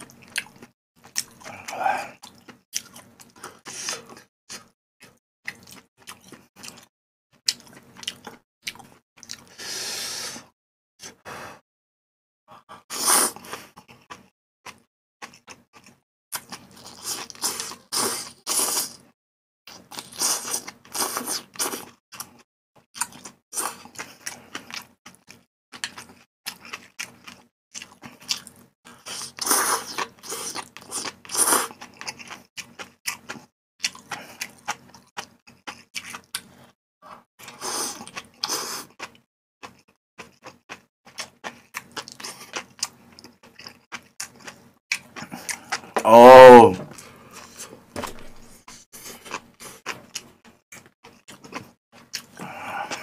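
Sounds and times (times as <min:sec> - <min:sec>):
wet chewing: 0:23.0 - 0:36.5, 0:37.4 - 0:45.9, 0:48.7 - 0:53.0.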